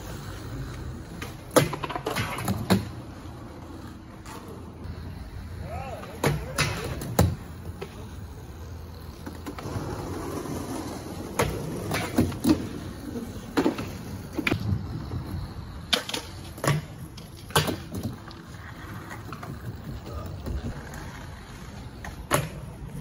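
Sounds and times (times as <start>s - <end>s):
skateboard clacking on deck boards: 1.1s - 3.0s.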